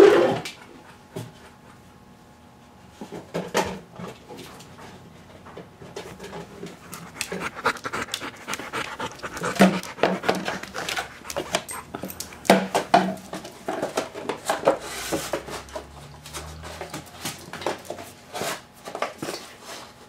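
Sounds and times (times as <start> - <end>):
dog panting: 6.0 - 12.8.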